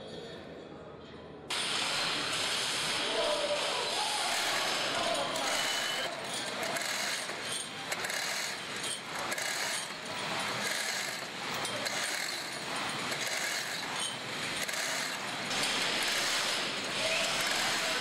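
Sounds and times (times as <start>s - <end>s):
steady background noise: 0.0s - 18.0s
chain hoist ratchet clicks: 4.3s - 18.0s
steel chain clinking: 5.0s - 18.0s.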